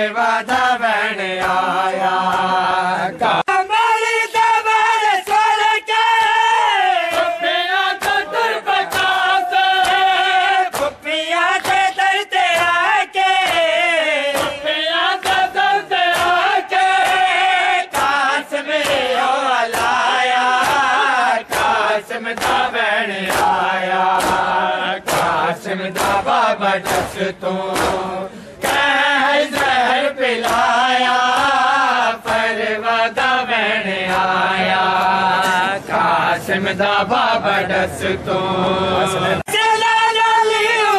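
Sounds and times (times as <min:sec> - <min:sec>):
hand-slaps on bare chests: 0:00.0 - 0:02.6, 0:04.3 - 0:32.6, 0:34.0 - 0:34.4
voices chanting a lament: 0:00.0 - 0:40.9.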